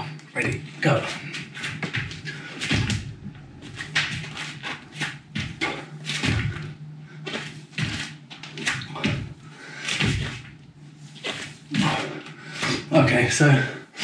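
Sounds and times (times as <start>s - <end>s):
steady low hum: 0.0s - 14.0s
hands and feet thudding on mat: 1.1s - 10.5s.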